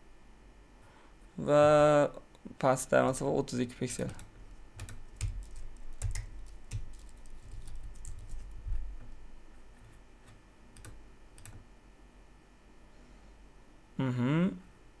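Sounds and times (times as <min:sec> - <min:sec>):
computer keyboard typing: 0:03.8 - 0:09.1, 0:09.8 - 0:11.6.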